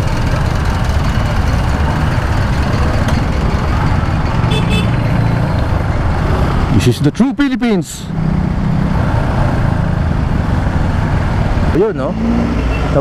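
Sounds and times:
motorcycle engine idling: 0.0s - 6.2s
rumble of surrounding traffic: 0.0s - 13.0s.

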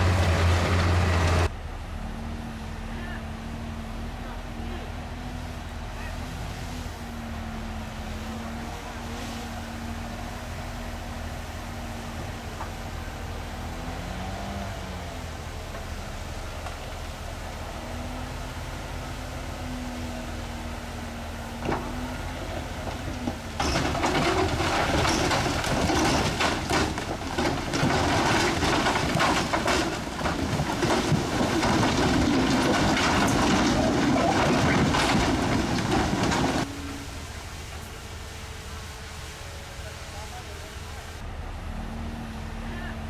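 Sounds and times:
diesel machinery running: 0.0s - 43.0s
rock and soil grinding: 21.7s - 36.7s.

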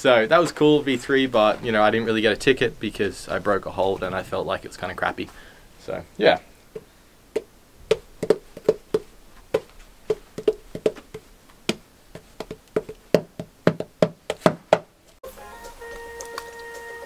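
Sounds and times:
wood-block knocks music: 10.1s - 14.9s.

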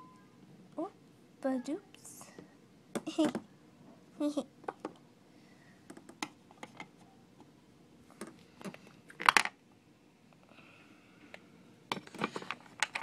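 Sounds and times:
plastic toys clicking and rustling: 8.6s - 9.6s, 11.9s - 13.0s.

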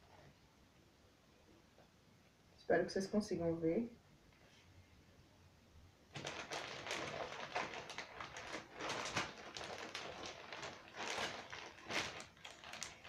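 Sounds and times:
plastic packaging crinkling: 6.1s - 13.0s.

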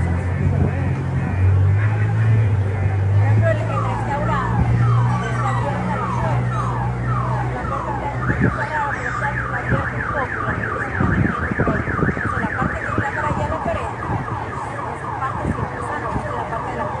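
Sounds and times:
street noise: 0.0s - 17.0s
car alarm warbling: 3.5s - 17.0s.

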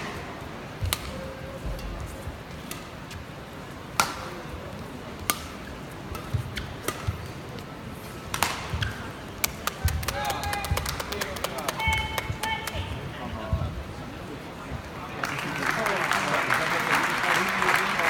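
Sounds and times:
rackets striking shuttlecock: 3.9s - 4.4s, 5.3s - 5.5s, 8.3s - 12.1s.

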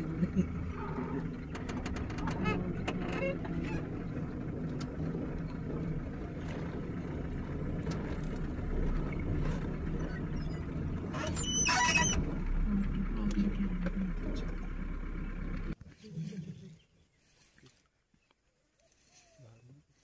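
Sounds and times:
jeep engine running: 0.0s - 15.8s.

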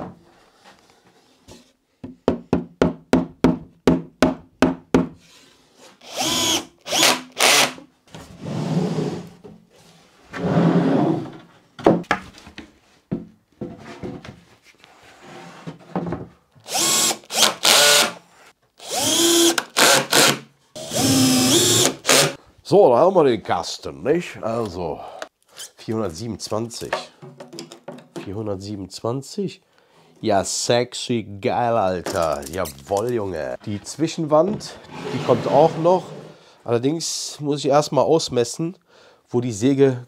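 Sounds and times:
cordless drill driving screws: 6.0s - 7.8s, 16.6s - 18.2s, 18.8s - 22.4s.

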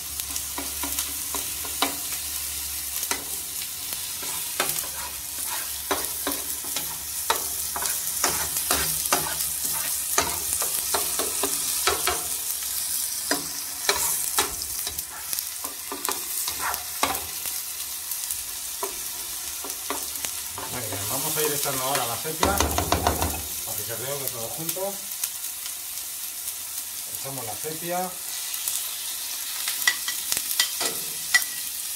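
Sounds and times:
vegetables sizzling in oil: 0.0s - 31.9s
metal spoon scraping pan: 4.2s - 12.2s, 13.4s - 15.4s.

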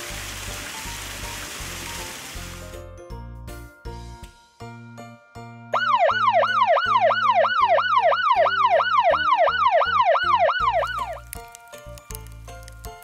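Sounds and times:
light background music: 0.0s - 13.0s
fire engine siren wailing: 5.8s - 11.2s.

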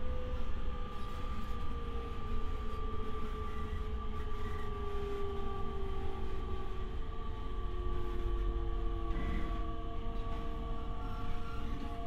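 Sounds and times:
electric train low rumble: 0.0s - 12.0s.

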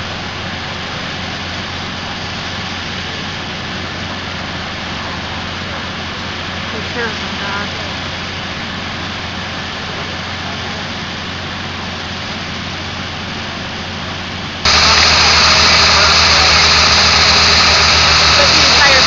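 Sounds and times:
engine drone: 0.0s - 19.0s
rushing hiss: 14.7s - 19.0s.

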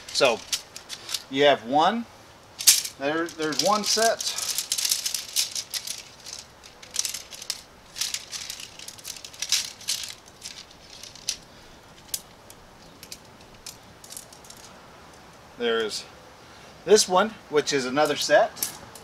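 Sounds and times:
tent pole sections clicking: 0.0s - 1.3s, 2.6s - 15.4s.

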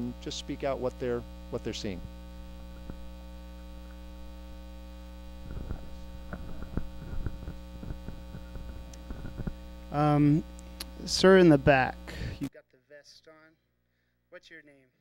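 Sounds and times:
mains hum: 0.0s - 15.0s
microphone handling knocks and rubbing: 2.4s - 3.4s, 5.3s - 9.8s.

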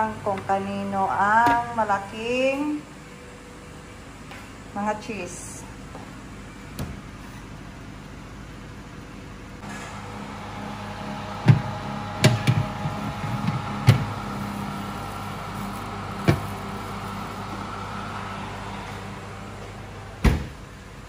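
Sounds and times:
oven humming: 0.0s - 21.0s
oven door shutting: 11.4s - 17.5s, 20.2s - 20.6s.

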